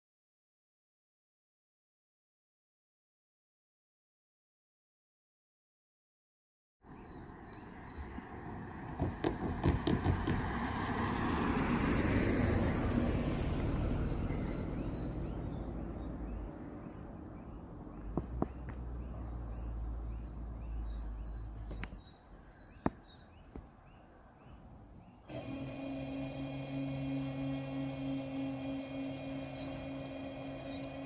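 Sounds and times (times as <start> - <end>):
birds chirping: 6.8 - 11.5, 13.5 - 31.0
car road noise: 6.9 - 22.0, 25.3 - 31.0.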